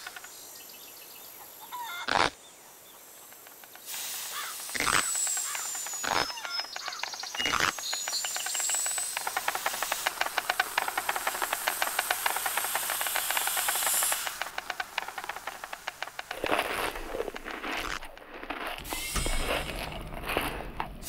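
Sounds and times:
high hiss: 3.0 - 6.7, 7.8 - 16.3, 18.8 - 20.0
cartoon rattle of clicks: 3.3 - 18.2.

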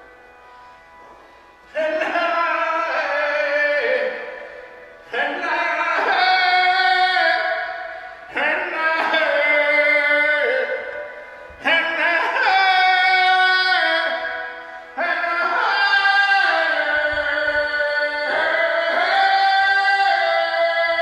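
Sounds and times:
overtone singing: 1.3 - 21.0.

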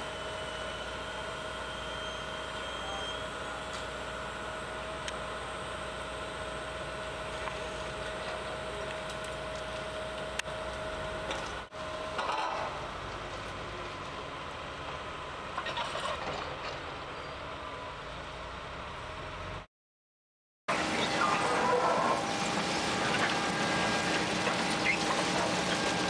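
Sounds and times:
steady whine: 0.0 - 15.5, 20.7 - 26.0
excavator engine and hydraulics: 0.0 - 19.7, 20.7 - 26.0.

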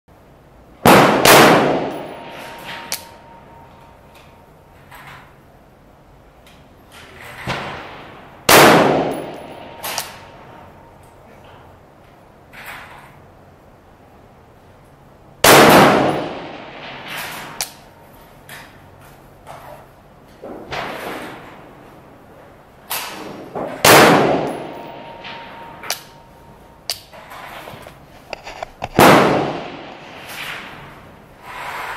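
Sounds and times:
rifle shots: 0.8 - 3.4, 7.5 - 10.6, 15.4 - 17.6, 23.1 - 26.3, 28.9 - 31.0
thin ringing tone: 24.6 - 26.9.

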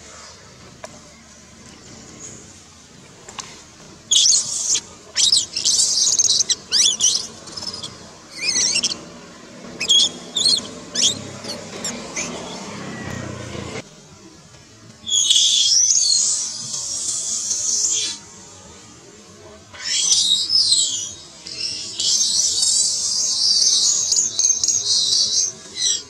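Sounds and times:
baby monkey screaming: 4.1 - 9.0, 9.8 - 11.6.

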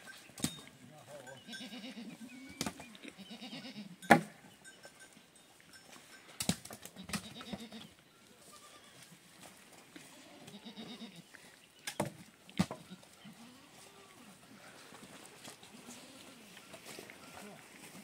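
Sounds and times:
livestock bleating: 1.3 - 4.0, 7.0 - 9.1, 10.0 - 11.3, 12.8 - 14.4, 15.8 - 16.6.

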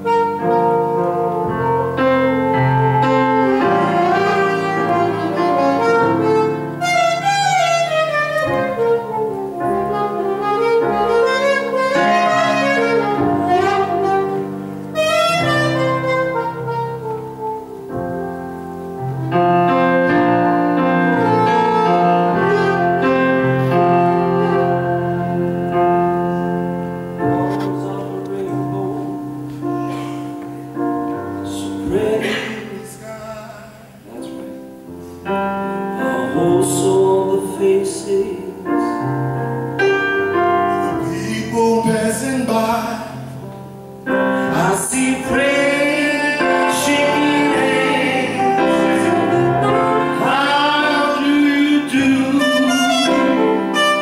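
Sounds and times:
saxophone solo: 0.0 - 30.4, 45.4 - 54.0
piano accompaniment: 0.0 - 54.0.

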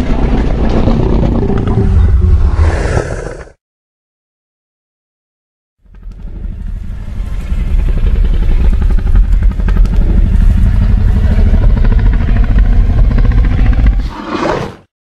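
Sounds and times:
creature rumbling roar: 0.9 - 3.6, 9.7 - 14.9.

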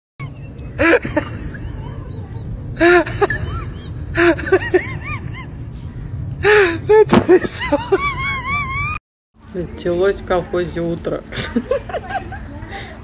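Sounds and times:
steady low rumble: 0.2 - 9.0.

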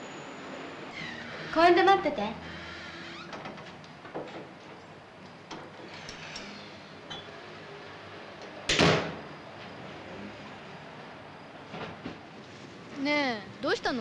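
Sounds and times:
door shutting with a bang: 8.7 - 9.2.

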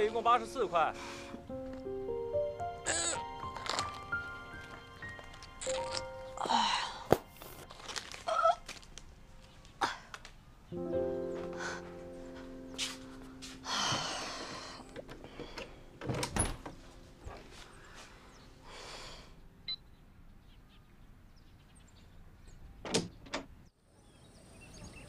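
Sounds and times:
wooden door sliding and rustling: 14.4 - 17.6.

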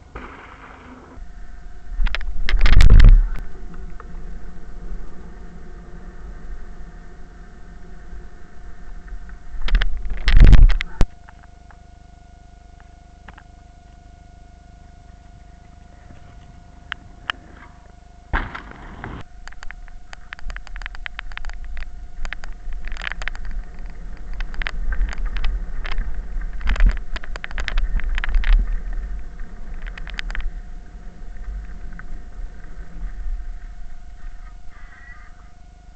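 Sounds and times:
wind and tyres rumbling: 0.0 - 11.1, 16.1 - 35.1
bike clicking and rattling: 18.4 - 30.6.

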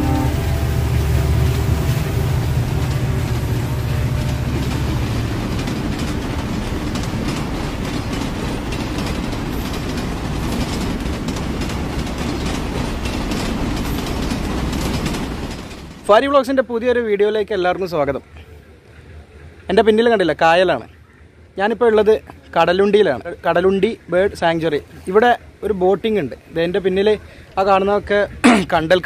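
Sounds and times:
train wheels clattering: 0.0 - 16.1
deep low rumble of train: 0.0 - 29.0
rail clicks: 0.0 - 29.0.

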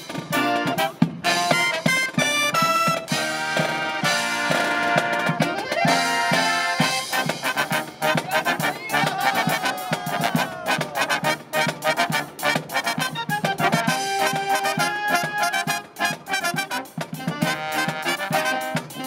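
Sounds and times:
marching brass band playing: 0.0 - 19.0
snare drum beat: 0.0 - 19.0.

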